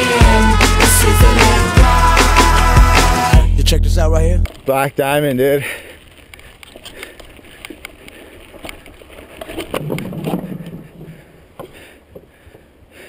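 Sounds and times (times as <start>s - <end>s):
bike rattling over bumps: 4.5s - 12.7s
bike tyres on dirt trail: 4.5s - 13.0s.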